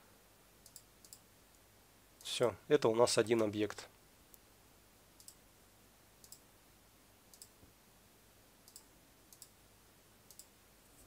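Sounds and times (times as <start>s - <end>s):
low steady hiss: 0.0s - 11.0s
computer mouse clicks: 0.6s - 1.2s, 5.2s - 5.4s, 6.2s - 6.4s, 7.3s - 7.6s, 8.6s - 9.5s, 10.3s - 10.5s.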